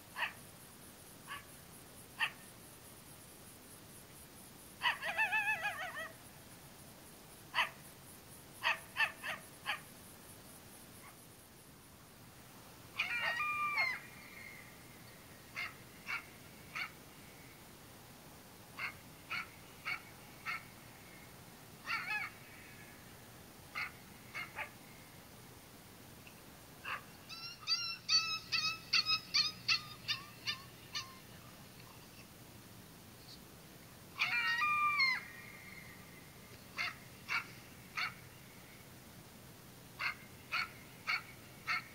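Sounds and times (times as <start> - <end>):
coyote barks: 0.1 - 0.4, 1.2 - 1.5, 2.2 - 2.5, 4.8 - 6.2, 7.5 - 7.8, 8.6 - 9.9, 12.9 - 14.5, 15.5 - 17.0, 18.8 - 21.2, 21.8 - 22.9, 23.7 - 24.8, 26.8 - 31.3, 34.1 - 35.8, 36.7 - 38.2, 40.0 - 41.9
coyote yipping howl: 4.8 - 6.2, 13.0 - 14.1, 15.6 - 17.0, 21.8 - 22.4, 26.9 - 31.2, 34.2 - 35.6, 36.8 - 38.2, 40.0 - 41.9.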